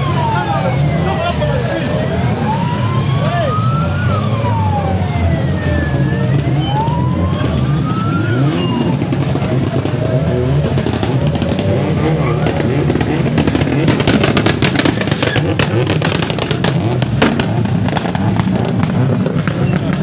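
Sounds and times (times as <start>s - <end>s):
siren wailing: 0.0s - 10.9s
engines revving in traffic: 0.0s - 20.0s.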